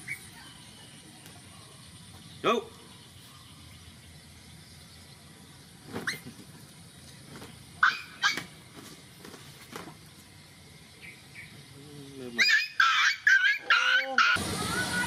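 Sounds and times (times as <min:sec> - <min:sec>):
puppies whimpering and yipping: 0:12.4 - 0:14.4.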